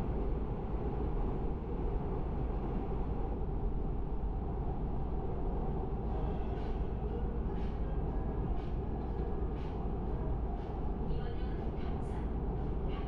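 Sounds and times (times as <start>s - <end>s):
train rumbling on bridge: 0.0s - 13.0s.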